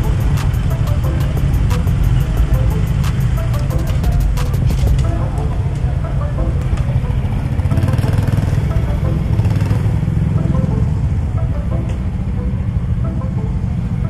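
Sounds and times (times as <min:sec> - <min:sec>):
motorcycle engine running: 0:00.0 - 0:05.3, 0:06.6 - 0:11.4
sharp clicks: 0:01.6 - 0:05.1.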